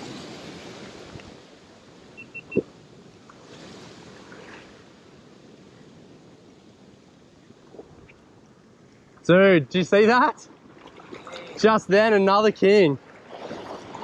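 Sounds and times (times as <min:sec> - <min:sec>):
surf washing against rocks: 0:00.0 - 0:02.2, 0:09.3 - 0:14.0
high chirps: 0:02.2 - 0:02.7.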